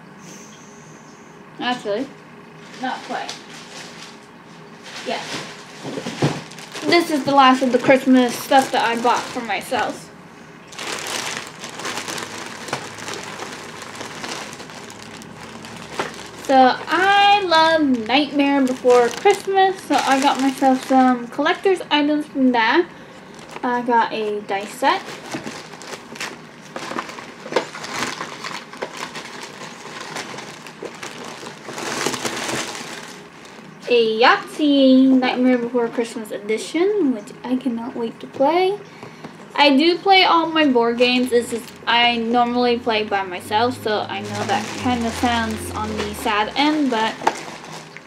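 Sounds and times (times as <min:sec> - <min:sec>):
plastic bag rustling: 0:02.6 - 0:22.2, 0:23.0 - 0:34.1, 0:40.9 - 0:43.0, 0:43.6 - 0:48.0.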